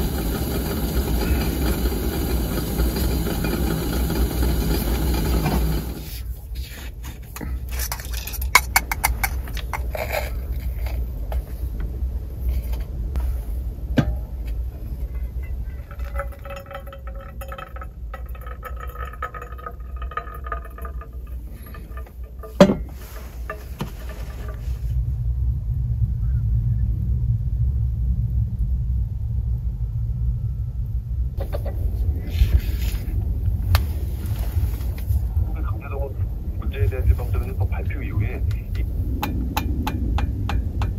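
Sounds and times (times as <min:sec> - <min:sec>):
kettle pouring water: 0:00.0 - 0:06.2, 0:13.2 - 0:24.9
low steady rumble: 0:00.0 - 0:40.9.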